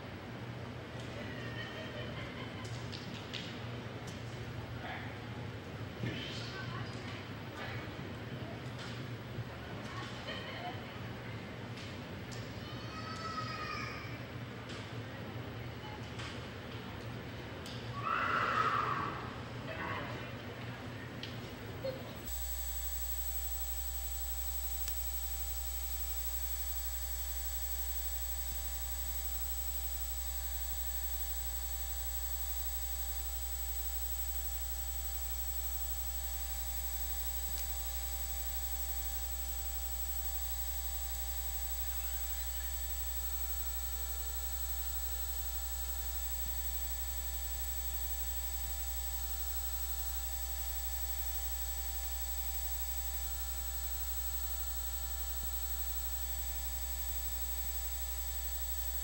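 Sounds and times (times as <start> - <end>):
electrical hum and buzz: 21.1 - 59.0.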